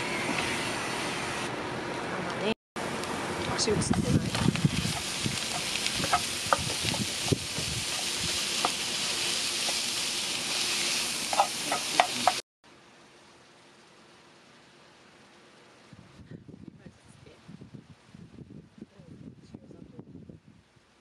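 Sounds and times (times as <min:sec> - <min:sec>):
meat sizzling in a frying pan: 0:03.6 - 0:12.4
spatula scraping a pan: 0:04.8 - 0:12.4.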